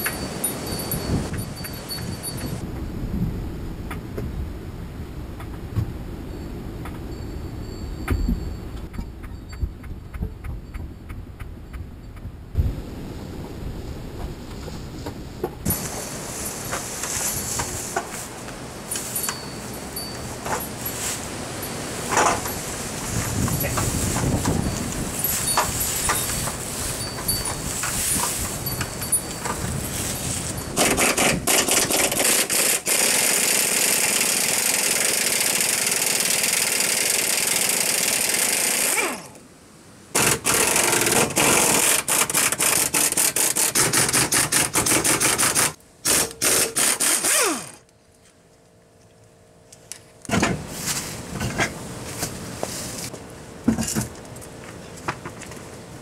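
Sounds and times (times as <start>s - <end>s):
power tool hammering rapidly: 30.8s - 39.3s, 40.2s - 47.8s.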